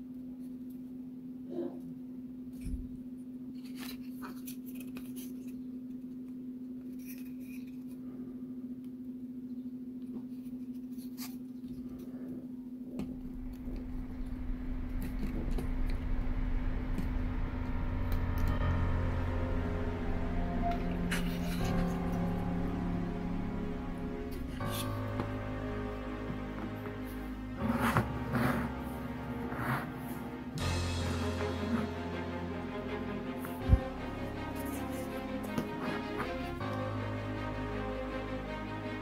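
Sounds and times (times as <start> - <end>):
steady hum: 11.7 - 39.0
music: 13.0 - 39.0.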